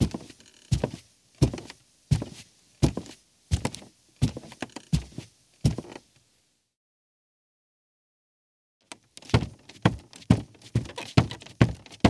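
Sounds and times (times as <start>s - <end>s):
barefoot footsteps on creaky rug: 0.0s - 6.1s, 8.9s - 12.0s.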